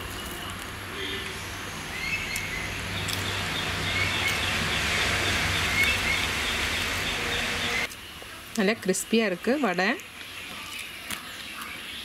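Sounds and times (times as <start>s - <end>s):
outdoor background noise: 0.0s - 12.0s
small birds chirping: 0.9s - 8.2s.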